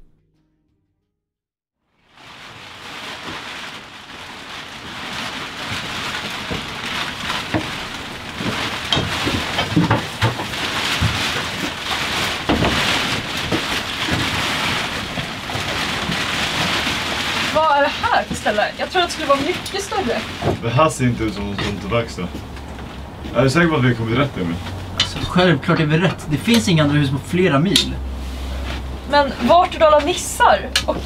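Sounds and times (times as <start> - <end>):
rain pattering: 2.0 - 31.0
footsteps: 4.9 - 26.8.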